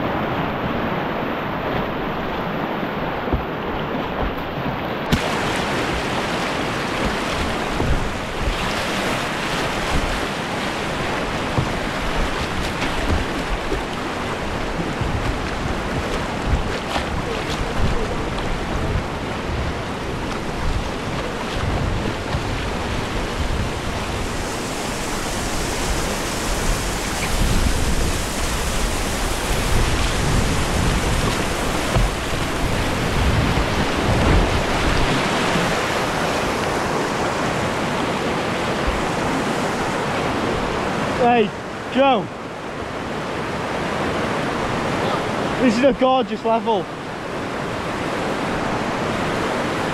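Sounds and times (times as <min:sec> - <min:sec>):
whitewater rushing: 0:00.0 - 0:49.9
wind buffeting microphone: 0:01.6 - 0:41.1.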